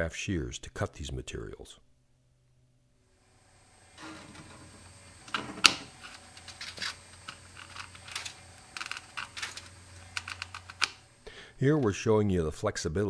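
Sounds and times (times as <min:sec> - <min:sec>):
wire mesh rustling: 0:04.0 - 0:11.2.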